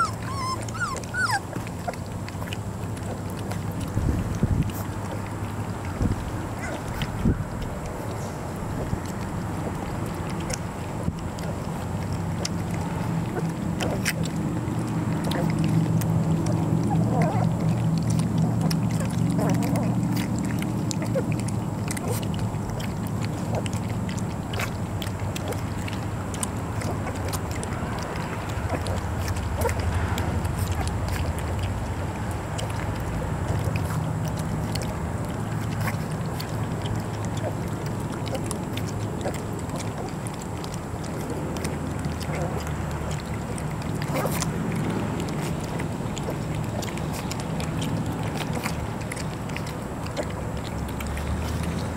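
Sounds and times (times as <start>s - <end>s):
puppies lapping and slurping: 0.0s - 51.9s.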